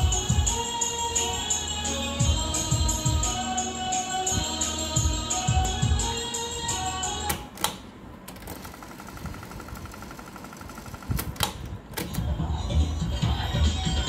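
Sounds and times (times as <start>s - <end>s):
music from tape: 0.0s - 7.8s, 11.4s - 14.0s.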